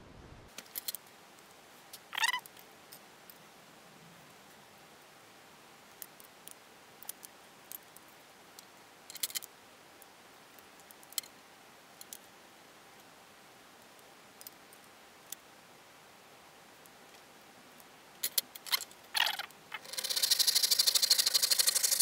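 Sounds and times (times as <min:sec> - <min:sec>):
faint hiss: 0:00.0 - 0:22.0
metal and wood clicks and taps: 0:09.1 - 0:09.5, 0:18.2 - 0:19.4.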